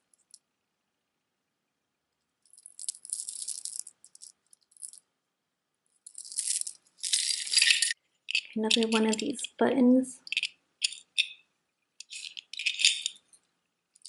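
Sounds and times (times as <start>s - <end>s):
necklace jingling and clinking: 2.5s - 5.0s, 6.1s - 9.6s, 10.2s - 11.4s, 12.0s - 13.4s.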